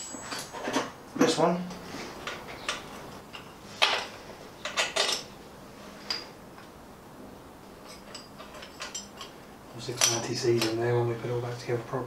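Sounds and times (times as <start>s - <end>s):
spanner clinking on metal: 7.8s - 10.8s.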